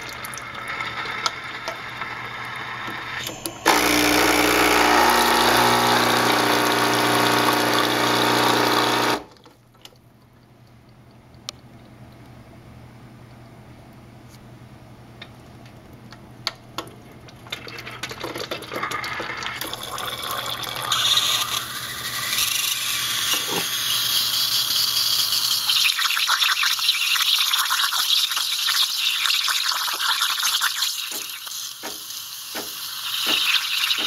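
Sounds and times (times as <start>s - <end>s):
steam wand hissing in water: 28.0s - 34.0s.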